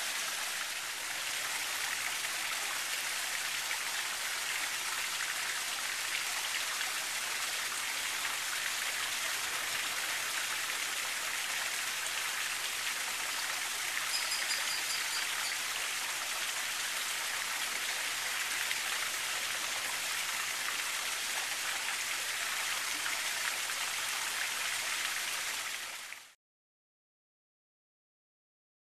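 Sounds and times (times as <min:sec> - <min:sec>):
rushing water hiss: 0:00.0 - 0:26.4
high bird chirps: 0:14.1 - 0:15.6.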